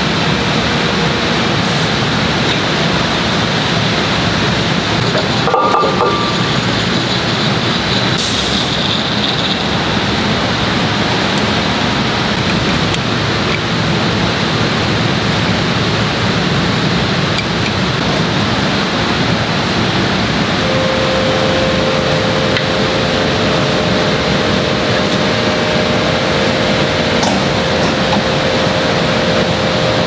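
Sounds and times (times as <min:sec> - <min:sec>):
machinery rushing noise: 0:00.0 - 0:30.0
metallic clatter: 0:05.0 - 0:10.2.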